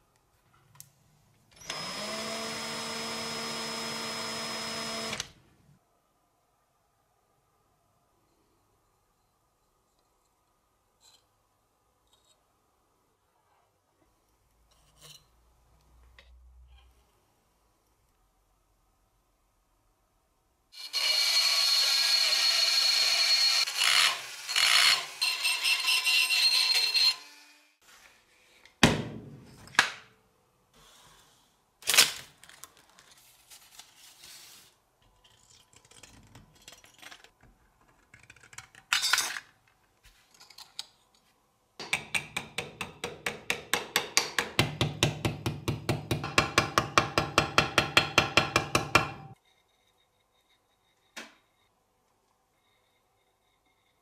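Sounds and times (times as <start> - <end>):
rotary tool grinding metal: 20.8 - 27.7.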